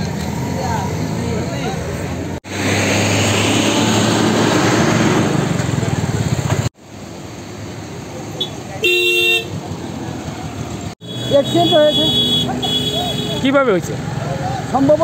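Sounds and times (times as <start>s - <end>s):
passing traffic: 0.0s - 15.0s
traffic noise with engine hum: 0.0s - 15.0s
vehicle horn: 8.8s - 9.6s, 11.0s - 13.5s.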